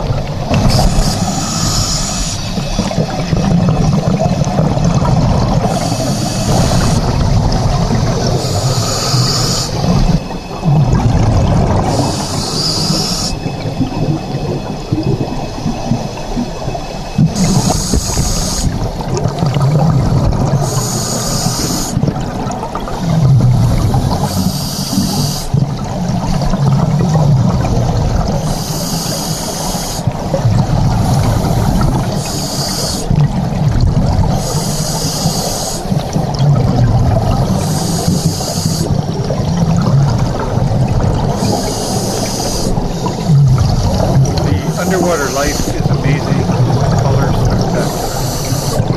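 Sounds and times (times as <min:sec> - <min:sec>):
bubbling exhaled air: 0:00.0 - 0:48.9
regulator hiss on inhale: 0:00.6 - 0:03.2, 0:05.6 - 0:07.1, 0:08.3 - 0:10.1, 0:11.9 - 0:13.4, 0:17.3 - 0:18.8, 0:20.6 - 0:22.0, 0:23.5 - 0:25.5, 0:28.4 - 0:30.1, 0:30.9 - 0:33.1, 0:34.4 - 0:36.0, 0:37.5 - 0:39.0, 0:41.4 - 0:42.8, 0:43.8 - 0:46.5, 0:47.6 - 0:48.9.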